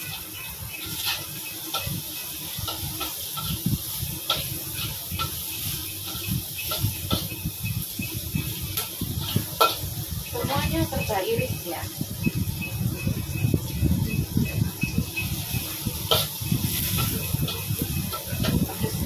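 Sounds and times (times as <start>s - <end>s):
metal spatula scraping a pan: 0.0s - 11.2s, 15.2s - 19.0s
chilies sizzling in a wok: 0.0s - 19.0s.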